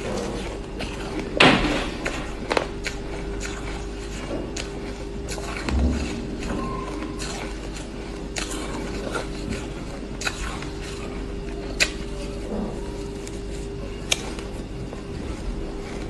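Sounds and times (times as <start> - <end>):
crunching shaved ice: 0.0 - 16.0
low hum: 5.2 - 9.6.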